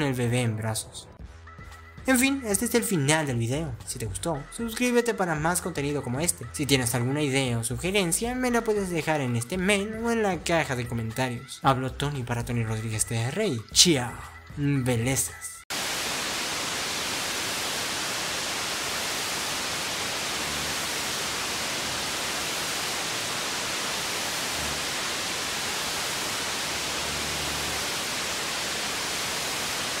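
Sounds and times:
static hiss: 15.7s - 30.0s.

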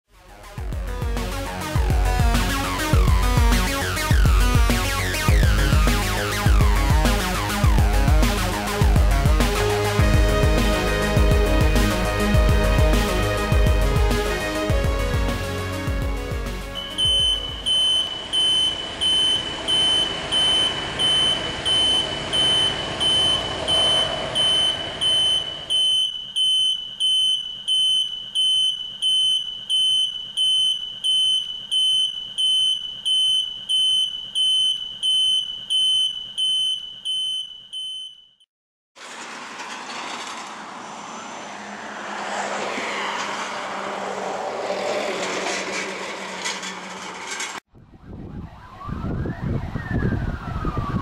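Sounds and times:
intro music: 0.2s - 17.9s
electronic alarm beeping: 16.8s - 38.4s.

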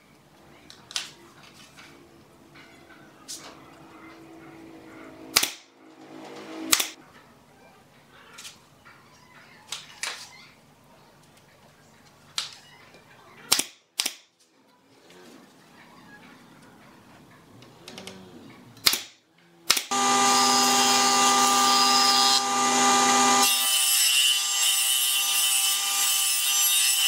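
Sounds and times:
nail gun firing: 5.3s - 5.6s, 6.7s - 7.0s, 13.5s - 14.3s, 18.8s - 19.1s, 19.7s - 20.5s.

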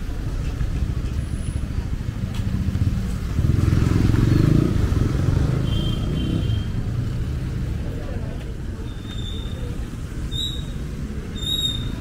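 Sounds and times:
vehicle engine passing: 2.4s - 8.0s.

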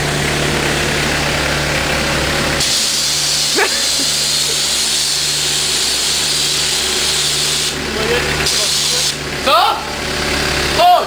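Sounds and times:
machinery hum: 0.0s - 10.6s
pressure washer spraying water: 2.6s - 9.2s.

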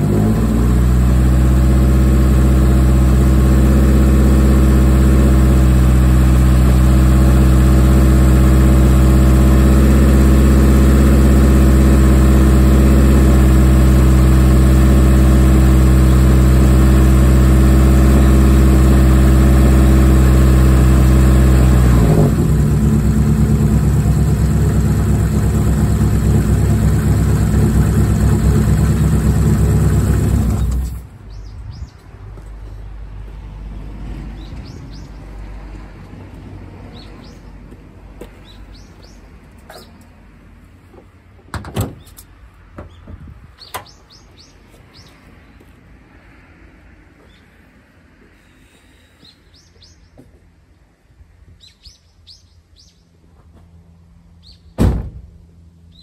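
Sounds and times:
car engine running: 0.0s - 31.2s
birds chirping: 31.2s - 32.2s, 33.8s - 35.4s, 36.8s - 40.1s, 42.0s - 45.8s, 47.2s - 47.6s, 48.5s - 50.4s, 51.6s - 53.2s
loud thump: 54.8s - 55.4s.

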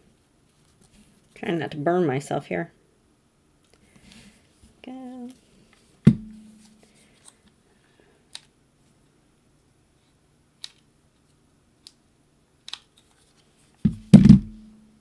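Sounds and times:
sharp knock: 6.1s - 6.6s, 13.9s - 14.7s.

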